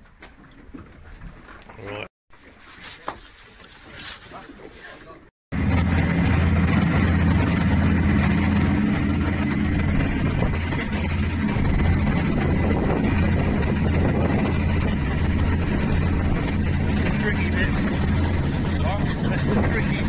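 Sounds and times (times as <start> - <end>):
boat engine running: 5.5 - 20.0.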